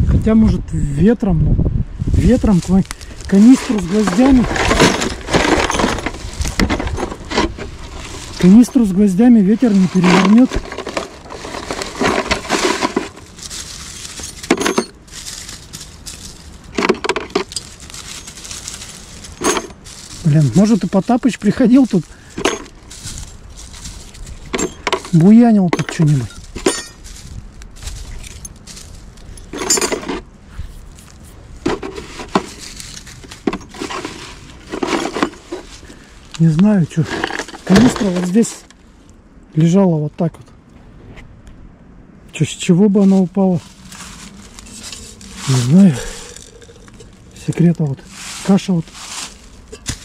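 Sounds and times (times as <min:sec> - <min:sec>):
objects clattering: 0:03.1 - 0:30.3, 0:31.6 - 0:38.8, 0:43.0 - 0:50.0
nails rattling in metal canister: 0:03.3 - 0:08.8, 0:09.6 - 0:15.0, 0:19.3 - 0:20.8, 0:29.4 - 0:30.2, 0:31.7 - 0:35.9.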